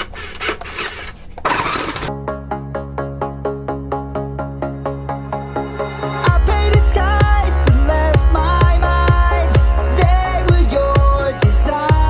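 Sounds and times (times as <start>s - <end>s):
electronic dance music: 3.6s - 12.0s
steady kick drum: 6.3s - 12.0s.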